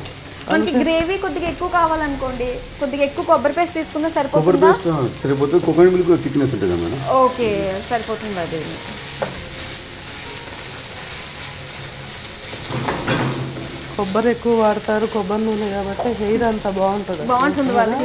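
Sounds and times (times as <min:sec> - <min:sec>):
food sizzling in frying pan: 0:00.0 - 0:18.0
person speaking: 0:00.4 - 0:01.4, 0:04.3 - 0:07.8, 0:14.0 - 0:18.0
spatula stirring: 0:05.4 - 0:18.0.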